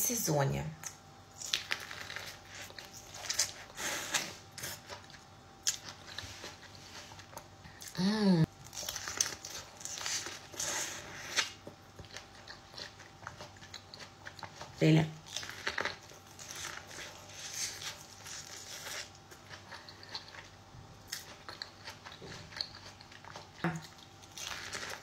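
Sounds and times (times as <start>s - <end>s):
corn on the cob being chewed: 1.4s - 7.6s, 8.5s - 25.0s
person humming: 7.8s - 8.5s.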